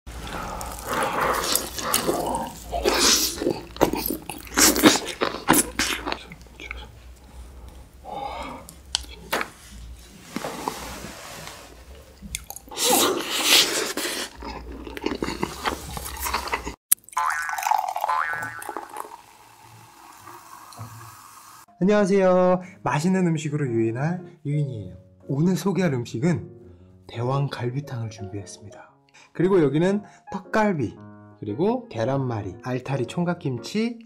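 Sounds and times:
biting and tearing meat: 0.2s - 6.9s, 12.2s - 17.8s
chewing with wet mouth noises: 0.2s - 9.3s, 12.0s - 16.8s.

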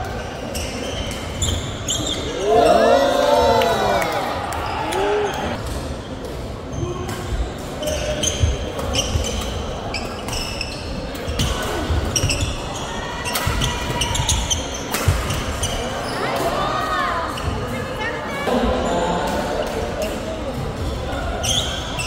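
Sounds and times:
shoes squeaking on court floor: 0.0s - 2.8s, 5.2s - 16.4s, 20.8s - 22.0s.

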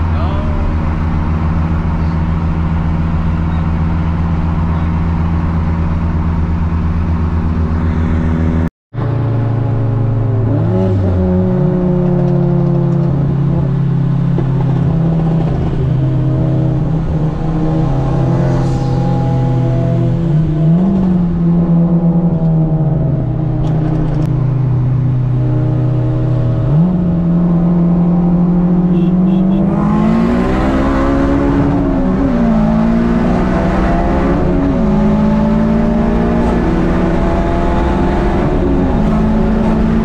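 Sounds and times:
car engine running: 0.0s - 10.5s.

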